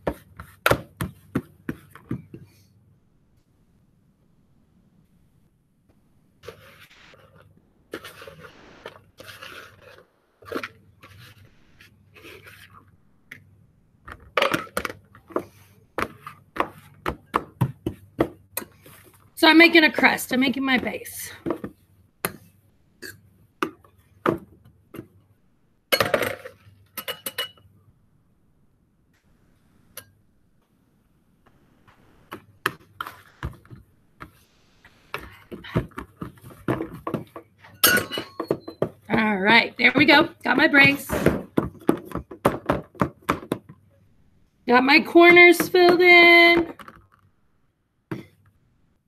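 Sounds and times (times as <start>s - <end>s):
spoon scraping a plastic bowl: 6.4s - 12.9s.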